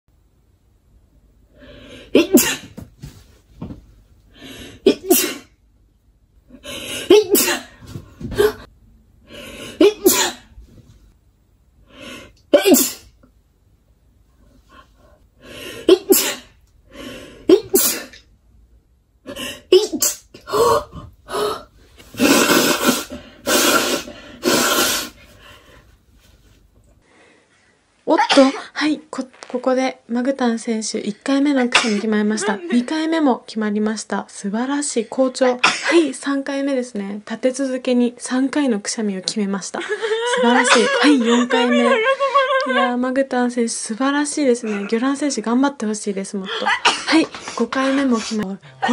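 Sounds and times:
woman sneezing: 0:02.1 - 0:02.7, 0:04.9 - 0:05.5, 0:07.0 - 0:08.7, 0:09.8 - 0:10.5, 0:12.5 - 0:13.1, 0:15.8 - 0:16.5, 0:17.5 - 0:18.2, 0:19.7 - 0:20.9, 0:31.7 - 0:32.1, 0:35.5 - 0:36.1
woman gasping: 0:20.4 - 0:25.8
woman blowing her nose: 0:22.1 - 0:25.4.

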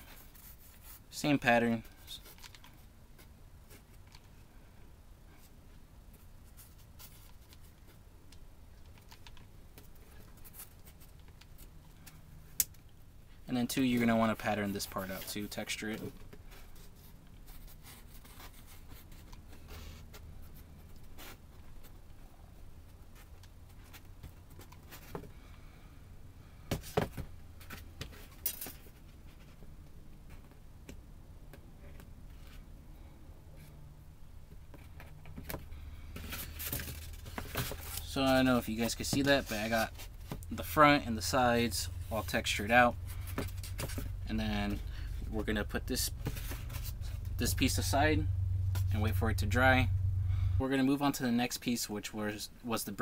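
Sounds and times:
low steady hum: 0:00.0 - 0:53.0.

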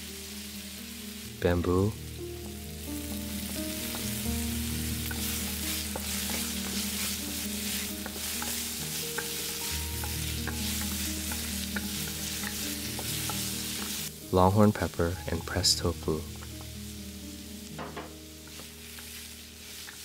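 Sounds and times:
food sizzling in a wok: 0:00.0 - 0:20.0
soft background music: 0:00.0 - 0:20.0.

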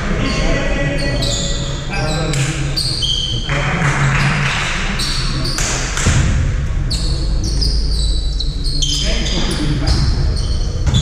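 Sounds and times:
sneakers squeaking on floor: 0:00.1 - 0:03.5, 0:05.0 - 0:05.9, 0:06.9 - 0:11.0
basketball bouncing: 0:09.9 - 0:11.0.

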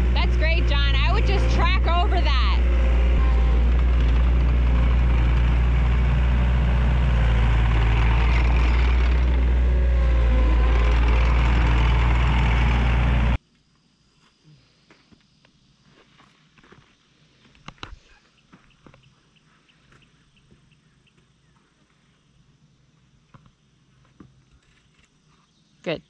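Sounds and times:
earthmoving machine engine running: 0:00.0 - 0:13.4.

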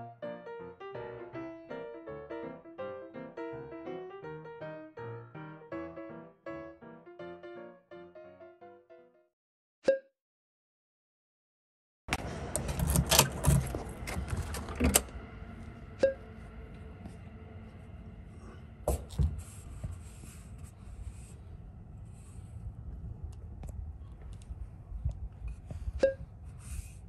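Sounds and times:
steady low hum: 0:12.1 - 0:27.0
keys jangling in door lock: 0:12.6 - 0:15.1.

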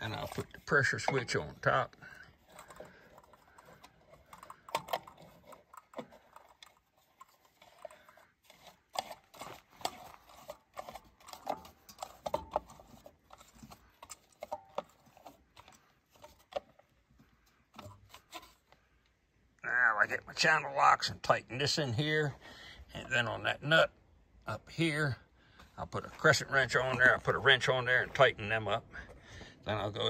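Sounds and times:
brass fittings clicking and scraping: 0:00.0 - 0:19.2.

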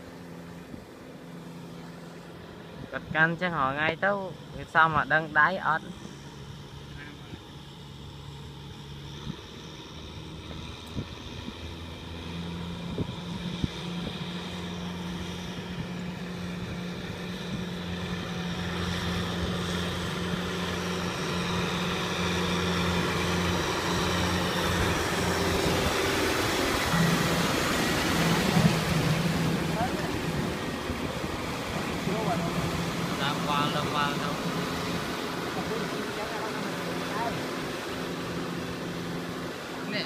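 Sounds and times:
tractor diesel engine running: 0:00.0 - 0:40.0.

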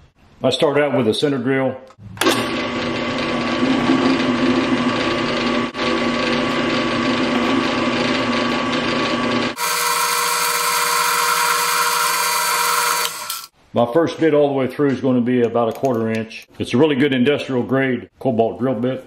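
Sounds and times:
drill press whining: 0:02.2 - 0:13.5.

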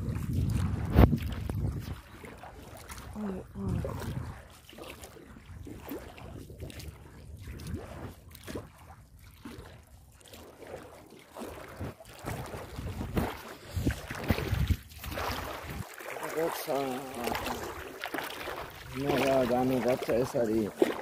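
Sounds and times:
wind buffeting microphone: 0:00.0 - 0:04.6, 0:05.2 - 0:09.6, 0:11.7 - 0:15.9.

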